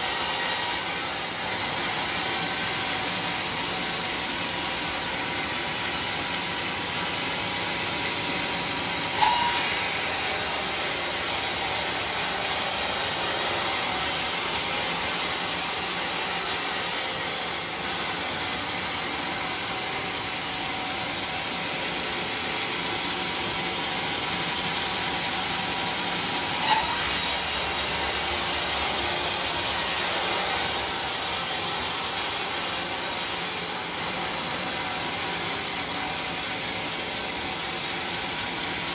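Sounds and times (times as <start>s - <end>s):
saw blade cutting wood: 0.0s - 1.4s, 9.1s - 17.4s, 26.6s - 33.5s
band sawmill running: 0.0s - 38.9s.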